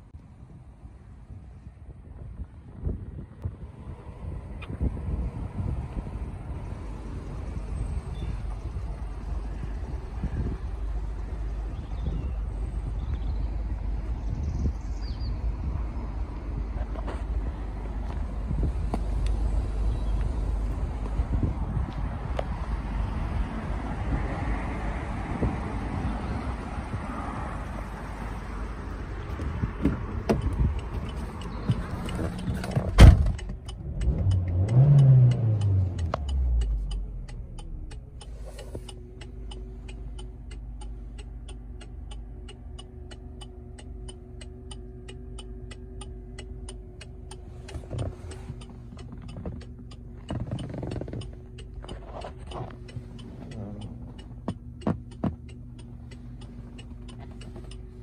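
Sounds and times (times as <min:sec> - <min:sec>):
car engine starting and idling: 0:00.0 - 0:58.0
car door thump: 0:32.8 - 0:33.4
hazard light flasher ticking: 0:33.4 - 0:50.2.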